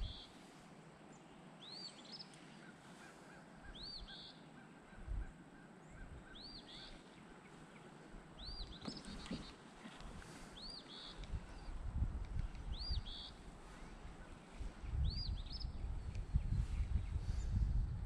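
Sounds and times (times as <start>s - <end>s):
songbird singing: 0.0s - 18.0s.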